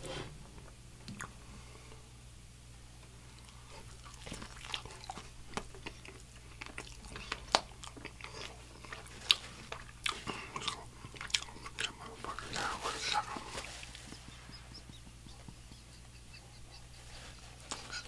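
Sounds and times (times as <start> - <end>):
chewing with wet mouth clicks: 1.1 - 1.4, 3.3 - 16.6.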